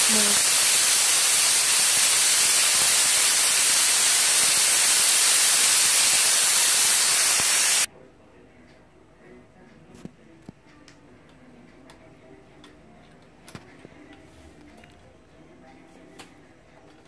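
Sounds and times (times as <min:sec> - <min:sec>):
pressure cooker hissing steam: 0:00.0 - 0:07.9.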